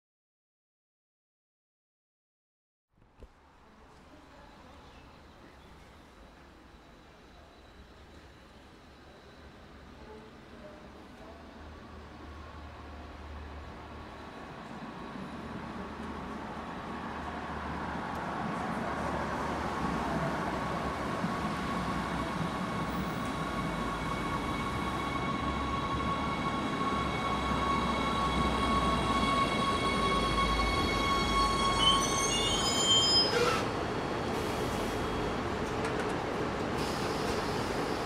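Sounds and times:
electric train high whine: 5.2 - 17.3, 20.6 - 38.0
wheel and brake squeals: 23.2 - 35.4.

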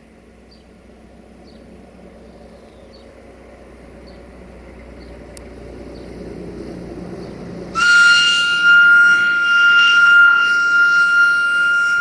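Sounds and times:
diesel engine running: 0.0 - 12.0
locomotive air whistle: 7.7 - 12.0.

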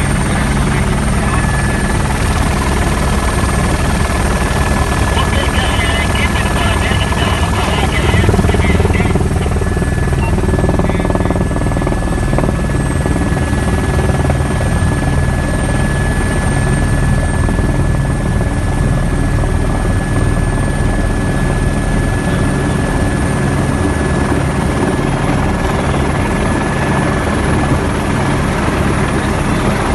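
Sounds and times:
helicopter rotor and engine noise: 0.0 - 29.9
thin steady whine: 0.0 - 29.9.

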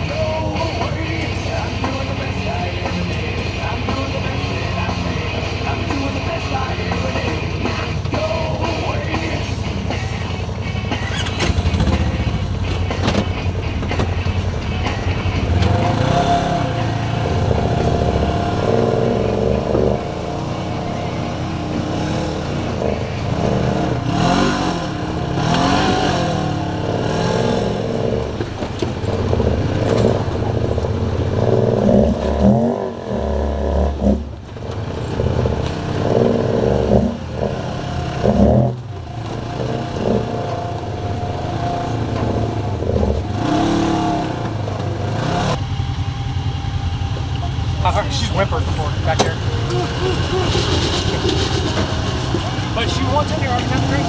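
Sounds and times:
utility vehicle engines revving: 0.0 - 54.0
thuds: 11.3 - 14.3.

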